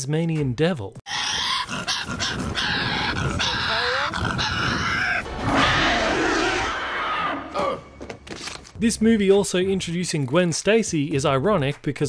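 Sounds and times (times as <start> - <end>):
animal rasping growls: 1.1 - 7.8
creature roar: 1.1 - 7.9.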